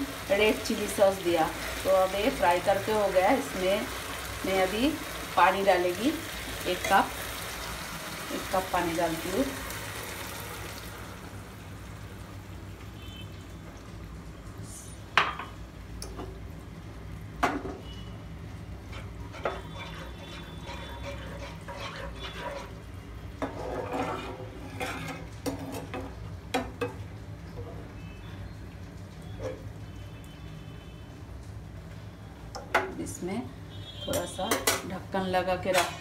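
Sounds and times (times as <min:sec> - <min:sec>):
spatula scraping frying pan: 0:18.8 - 0:25.9.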